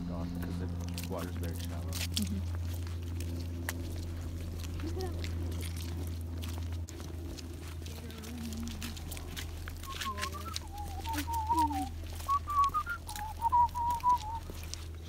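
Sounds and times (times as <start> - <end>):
person whistling a tune: 9.9 - 14.4.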